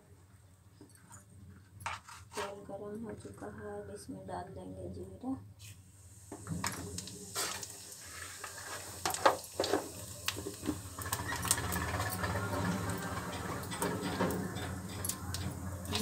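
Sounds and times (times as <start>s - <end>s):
seeds sizzling and crackling in oil: 6.0s - 16.0s.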